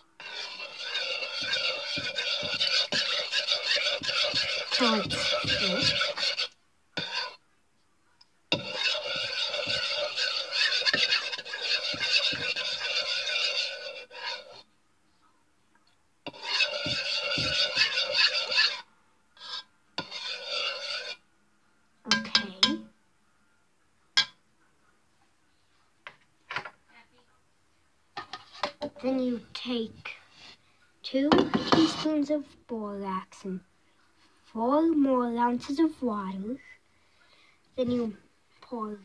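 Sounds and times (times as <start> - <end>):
utensil scraping mixing bowl: 0.0 - 7.4, 8.5 - 14.6, 16.3 - 18.8, 19.4 - 21.2, 31.4 - 32.2.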